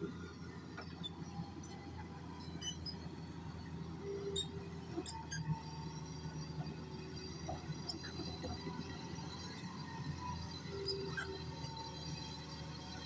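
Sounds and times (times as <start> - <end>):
diesel machinery humming: 0.0 - 13.0.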